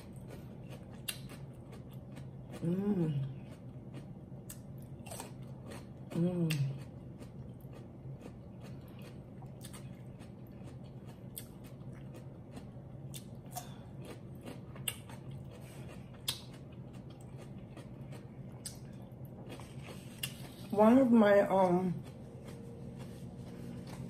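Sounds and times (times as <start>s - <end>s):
wet chewing: 0.0s - 20.8s
cucumber crunching: 0.0s - 24.0s.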